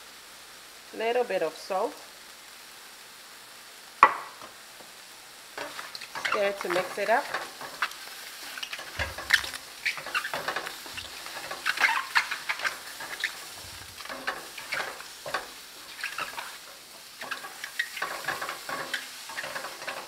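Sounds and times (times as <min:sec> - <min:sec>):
mushrooms sizzling in a skillet: 0:00.0 - 0:20.0
spatula scraping a pan: 0:05.6 - 0:20.0.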